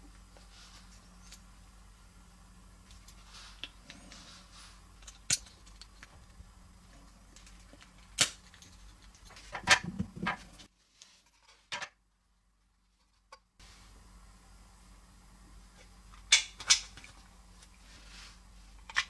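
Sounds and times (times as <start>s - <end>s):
plastic toy parts handled: 5.0s - 6.4s.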